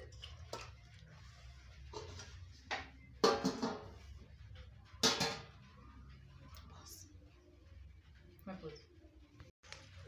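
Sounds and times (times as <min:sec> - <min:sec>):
metal lid clattering: 0:05.0 - 0:05.5.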